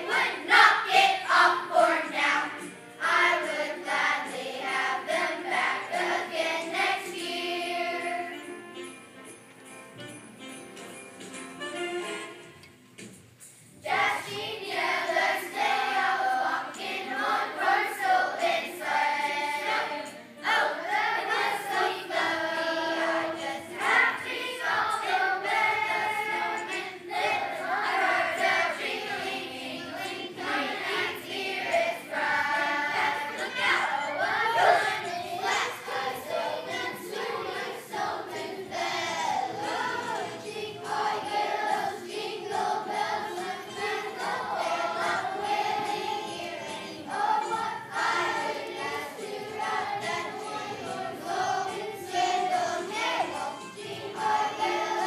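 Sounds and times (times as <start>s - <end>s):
children's choir singing: 0.0s - 8.8s, 13.8s - 55.0s.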